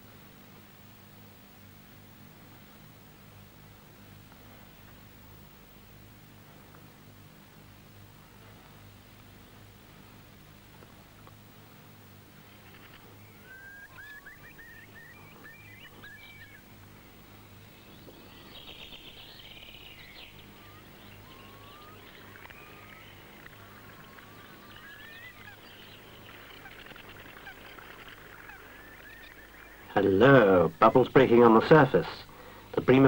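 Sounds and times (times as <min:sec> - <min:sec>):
low electrical hum: 0:00.0 - 0:33.0
birds chirping: 0:11.3 - 0:33.0
bird trill: 0:12.5 - 0:32.1.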